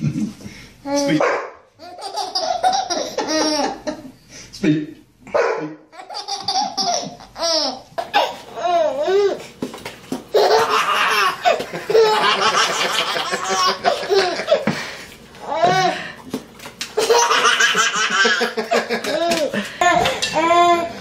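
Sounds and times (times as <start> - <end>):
infants laughing: 1.8 - 4.1, 10.4 - 14.7, 17.0 - 20.3.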